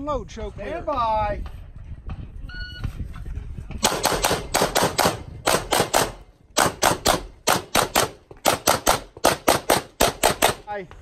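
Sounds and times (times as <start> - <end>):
pistol firing rapidly: 3.8 - 10.7.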